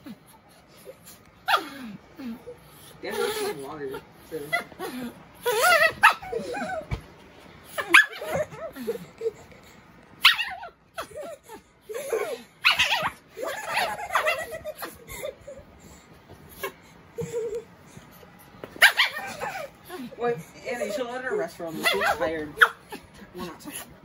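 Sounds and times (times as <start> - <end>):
girl laughing: 13.4 - 15.7.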